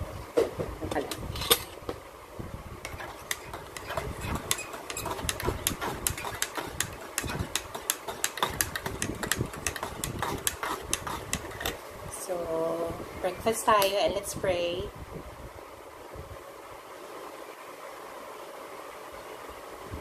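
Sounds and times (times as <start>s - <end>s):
electric kettle rumbling: 0.7s - 13.0s
clicks and taps of handling: 2.9s - 11.8s.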